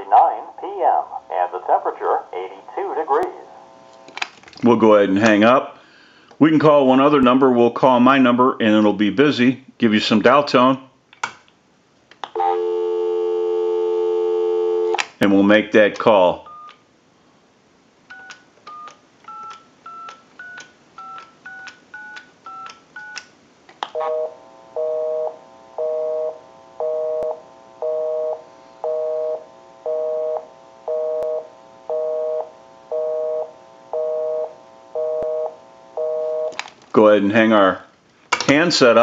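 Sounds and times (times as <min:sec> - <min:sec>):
busy signal beeping: 0:12.4 - 0:14.9, 0:24.0 - 0:36.5
touch-tone keypad beeps: 0:18.1 - 0:23.2.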